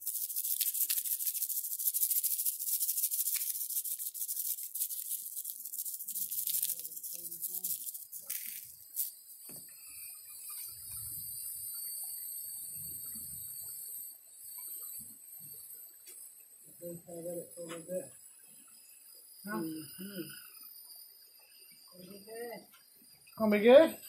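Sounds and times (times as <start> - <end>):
spice shaker rattling: 0.0 - 9.4
insects droning: 0.0 - 24.0.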